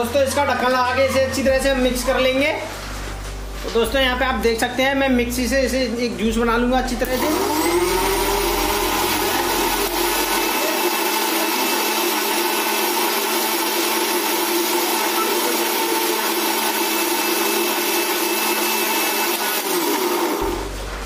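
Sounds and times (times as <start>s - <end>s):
mixer grinder motor whirring: 7.0s - 21.0s.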